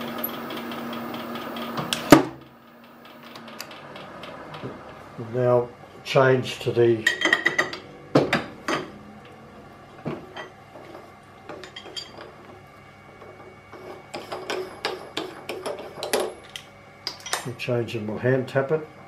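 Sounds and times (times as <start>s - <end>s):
steel tooling clinking: 11.5s - 12.4s.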